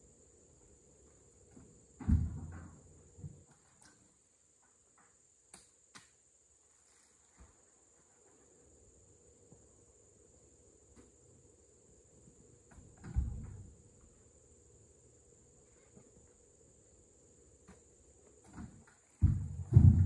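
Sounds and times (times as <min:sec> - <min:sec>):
insects droning: 0:00.0 - 0:20.0
fruit bunch thudding onto truck bed: 0:02.0 - 0:02.8, 0:18.4 - 0:20.0.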